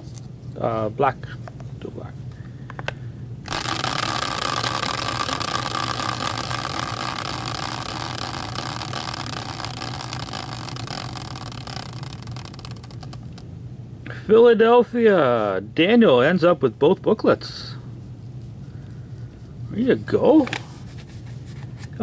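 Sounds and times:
spinning wheel whirring: 3.4 - 13.4.

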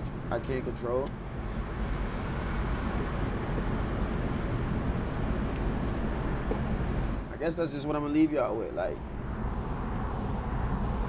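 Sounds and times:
city traffic rumble: 0.0 - 11.0.

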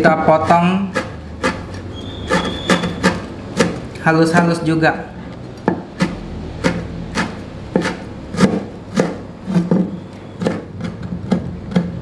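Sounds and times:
knife chopping on wooden board: 0.8 - 3.9, 5.7 - 12.0.

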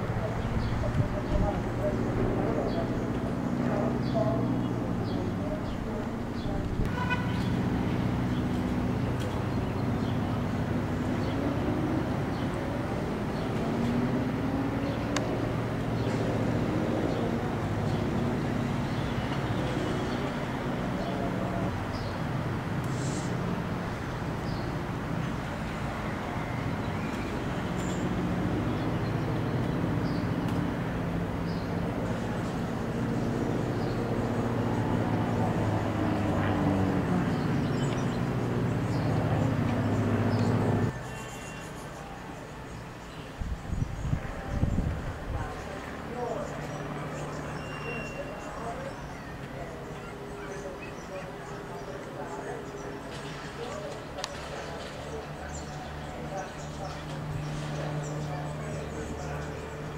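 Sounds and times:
small plane engines droning: 0.0 - 59.9.

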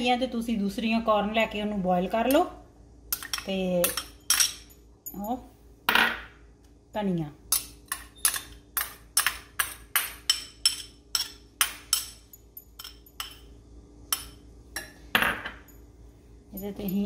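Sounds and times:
ceramic bowl clinking on glass bowl: 9.6 - 13.5.

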